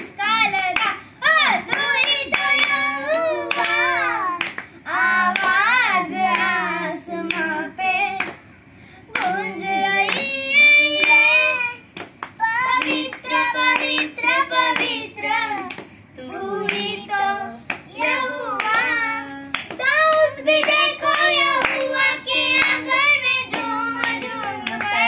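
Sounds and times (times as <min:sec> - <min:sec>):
hand claps: 0:00.0 - 0:01.0, 0:01.6 - 0:02.9, 0:03.5 - 0:04.7, 0:05.3 - 0:05.7, 0:06.3 - 0:06.5, 0:08.2 - 0:08.5, 0:09.1 - 0:09.4, 0:10.0 - 0:10.4, 0:12.0 - 0:15.0, 0:15.6 - 0:16.0, 0:17.7 - 0:18.9, 0:19.5 - 0:25.0
boys singing: 0:00.0 - 0:08.4, 0:09.1 - 0:25.0.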